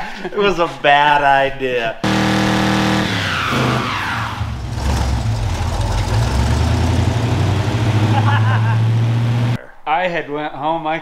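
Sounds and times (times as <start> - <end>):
engine revving during burnout: 2.0 - 9.6.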